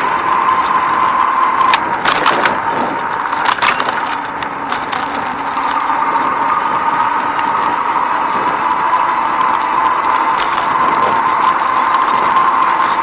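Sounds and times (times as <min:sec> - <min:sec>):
bicycle rolling on paved path: 0:00.0 - 0:13.0
bike mount rattling clicks: 0:01.7 - 0:05.2.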